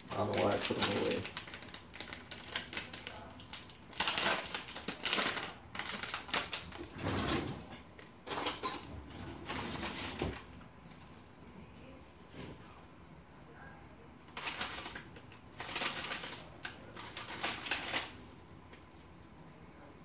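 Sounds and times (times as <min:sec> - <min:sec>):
spice containers rattling: 0:00.1 - 0:03.0, 0:14.3 - 0:18.2.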